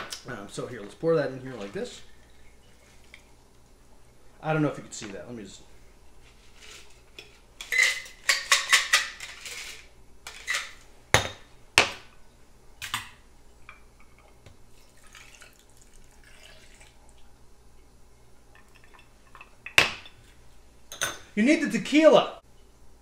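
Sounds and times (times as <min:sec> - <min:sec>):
drink pouring: 0:14.1 - 0:17.3, 0:18.5 - 0:19.7.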